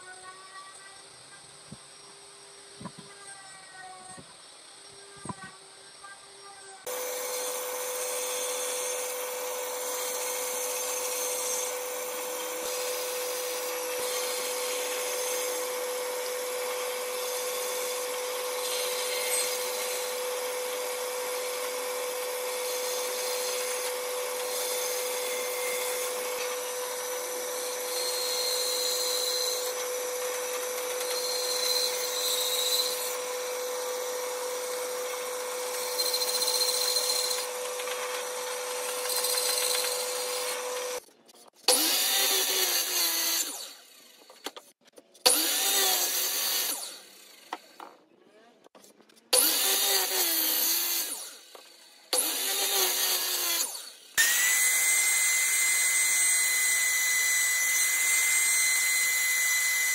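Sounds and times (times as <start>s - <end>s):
power tool rasping on wood: 6.9s - 41.0s, 49.4s - 59.9s.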